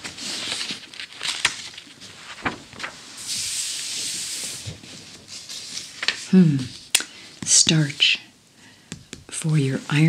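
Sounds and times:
page turning swish: 0:00.0 - 0:06.3
paper crackles: 0:00.0 - 0:06.9.

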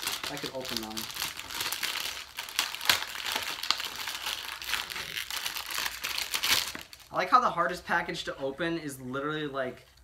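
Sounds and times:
plastic packaging crinkling: 0:00.0 - 0:07.2.

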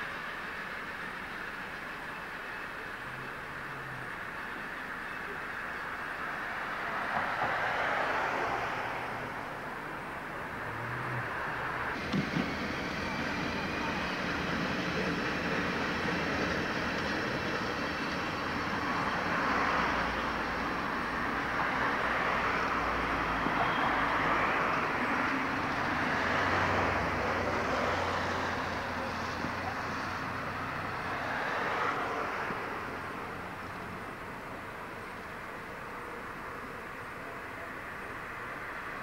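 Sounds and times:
locomotive rolling rumble and hiss: 0:00.0 - 0:39.0.

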